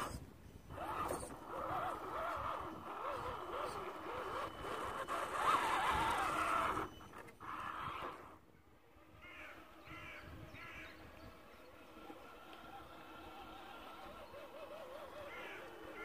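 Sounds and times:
electric motor whining: 0.0 - 16.0
crow cawing: 9.2 - 10.9, 15.3 - 16.0.

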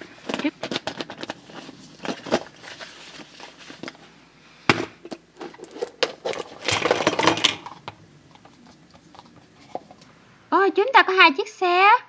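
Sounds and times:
plastic clatter and rustling: 0.0 - 4.1, 4.7 - 10.1.

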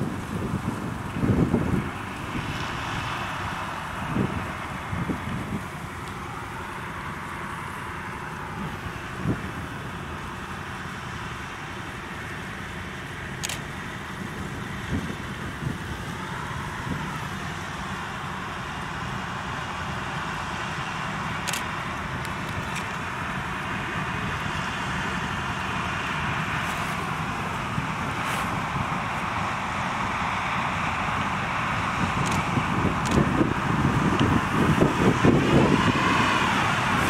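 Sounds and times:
combine harvester threshing: 0.0 - 37.0
tractor hauling trailer: 0.0 - 37.0
faint sharp clicks: 32.2 - 33.2.

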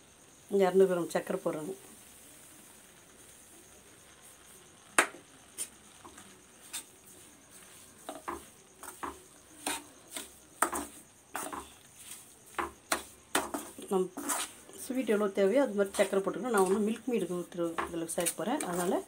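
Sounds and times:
metal ladle scraping a pan: 7.5 - 14.7.

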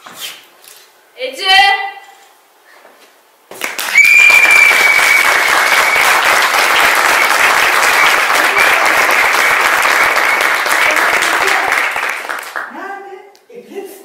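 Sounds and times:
audience applauding: 3.6 - 12.8.

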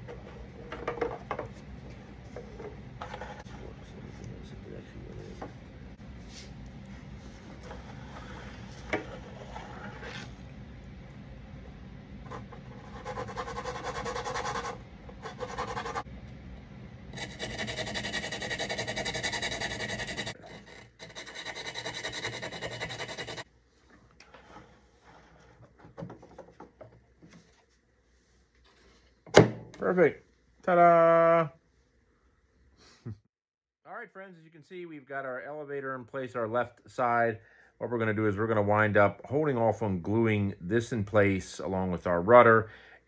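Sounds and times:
rubbing and scraping: 0.0 - 4.0, 7.3 - 10.4, 12.2 - 16.1, 17.2 - 23.5
low steady hum: 0.0 - 33.2.

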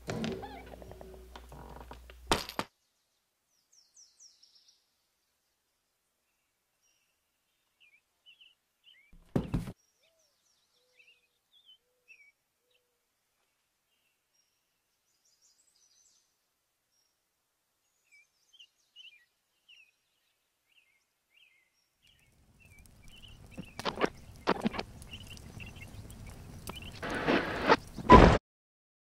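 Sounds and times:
faint bird chirps: 9.8 - 16.3, 17.9 - 27.1
sharp clicks and knocks: 22.7 - 27.1.

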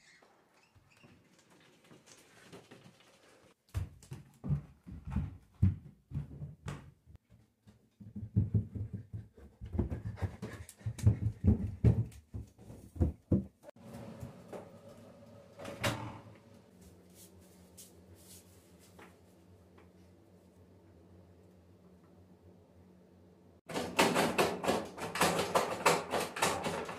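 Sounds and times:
footsteps on carpeted stairs: 3.7 - 13.8.

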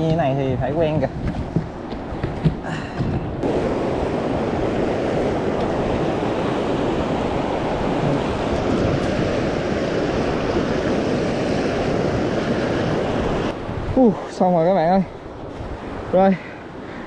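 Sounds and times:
wind on microphone: 0.0 - 17.0
river rapids rushing: 3.4 - 13.5.

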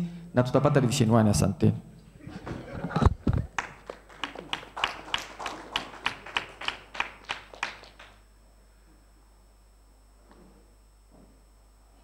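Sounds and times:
audience clapping: 2.4 - 8.2.

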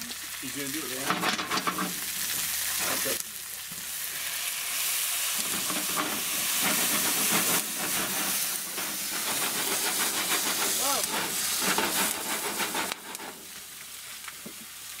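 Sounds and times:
onions sizzling in oil: 0.0 - 15.0.

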